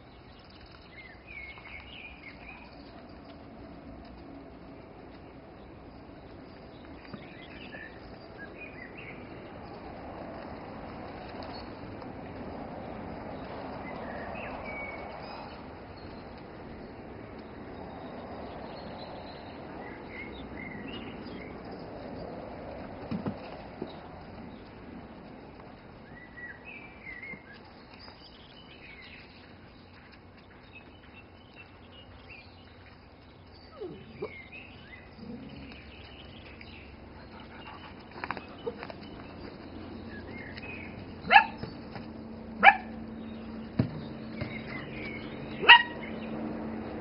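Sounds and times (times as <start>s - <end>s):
dog barking: 41.3s - 41.6s, 42.6s - 42.9s, 45.6s - 46.1s.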